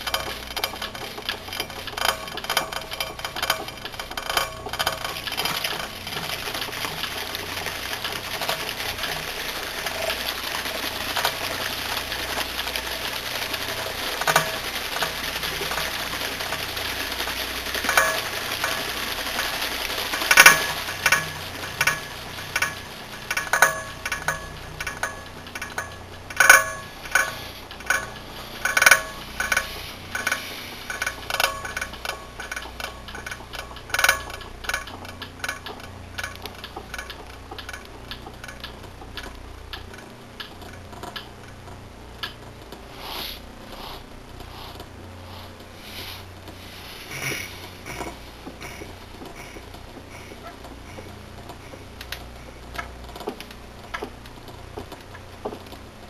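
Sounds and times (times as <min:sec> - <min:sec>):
sharp clicks and ringing clinks: 0:17.8 - 0:18.8, 0:20.3 - 0:38.7.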